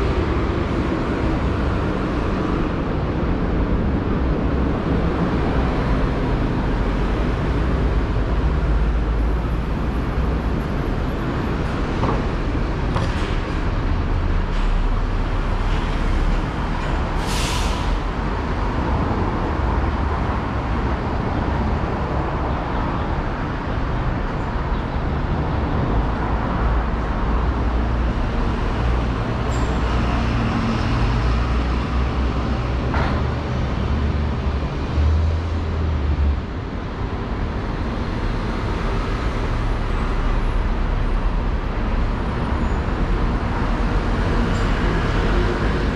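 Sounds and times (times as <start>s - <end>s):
rumble of passing vehicles: 0.0s - 45.9s.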